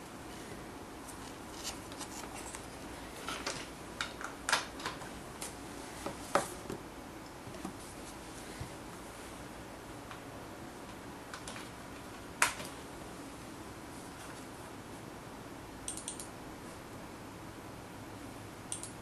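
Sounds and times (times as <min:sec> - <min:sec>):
headset handling clicks and rustles: 0:01.1 - 0:06.6.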